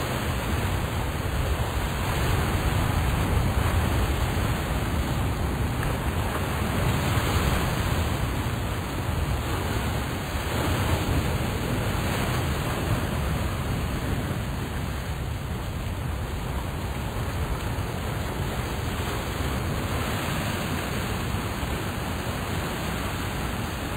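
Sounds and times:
steady rushing noise: 0.0s - 23.9s.

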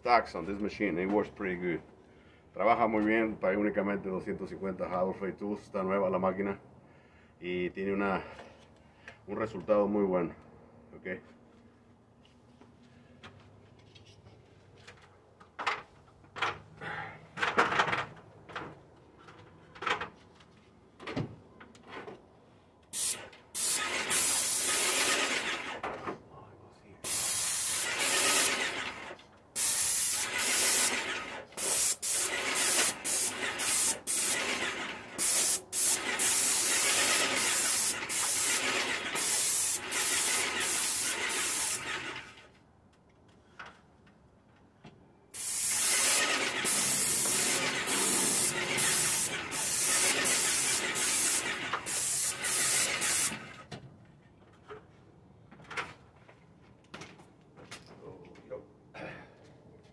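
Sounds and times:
paint sprayer hissing: 22.9s - 25.5s, 27.0s - 28.8s, 29.6s - 42.2s, 45.4s - 53.4s.

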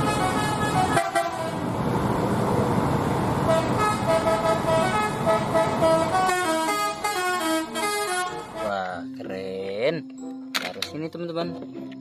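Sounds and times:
musical bus horns: 0.0s - 1.8s, 3.3s - 9.1s
engine and road noise: 0.0s - 9.8s.

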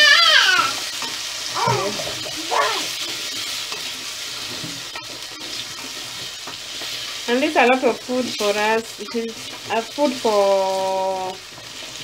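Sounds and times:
potatoes sizzling in hot oil: 0.0s - 12.0s.

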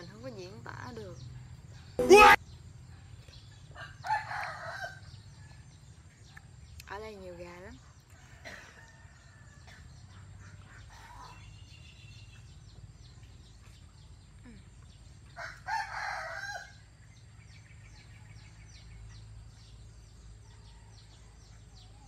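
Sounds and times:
faint high chirps: 2.0s - 2.4s
rooster crowing: 3.8s - 5.0s, 15.4s - 16.8s.

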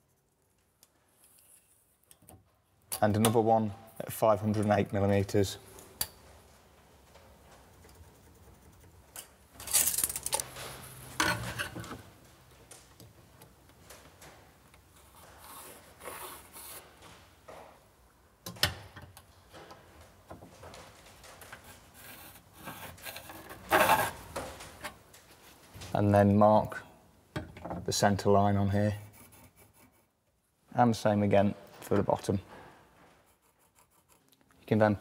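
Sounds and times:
pencil scratching on laminate: 29.0s - 30.1s, 33.3s - 34.2s.

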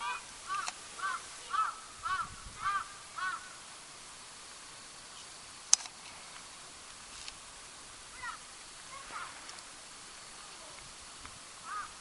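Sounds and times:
crow cawing: 0.0s - 3.6s, 11.6s - 12.0s.

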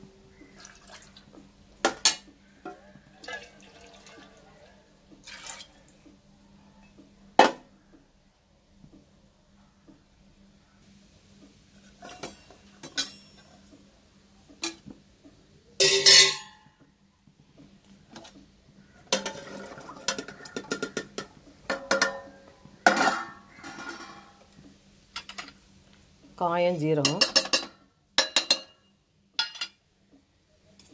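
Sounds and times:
steel vessels clinking: 12.0s - 13.7s, 15.8s - 16.7s, 19.1s - 24.4s
ringing metal clatter: 15.8s - 16.6s.

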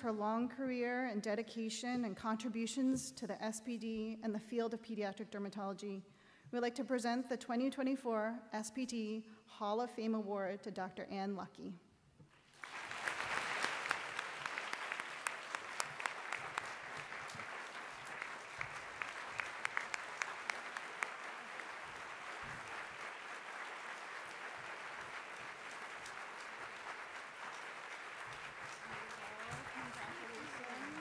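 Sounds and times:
audience applauding: 12.4s - 31.0s.

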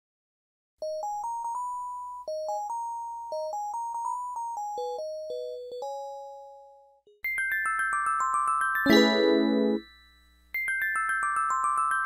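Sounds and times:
electronic chime melody: 8.8s - 10.0s.

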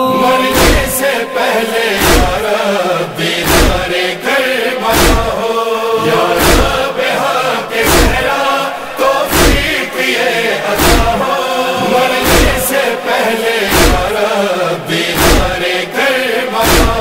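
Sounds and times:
chorus chanting: 0.0s - 17.0s
deep rhythmic thump: 0.2s - 2.6s, 3.4s - 4.0s, 4.9s - 5.4s, 6.0s - 7.0s, 7.8s - 8.4s, 9.3s - 9.8s, 10.8s - 12.8s, 13.7s - 14.2s, 15.1s - 15.7s, 16.6s - 17.0s.

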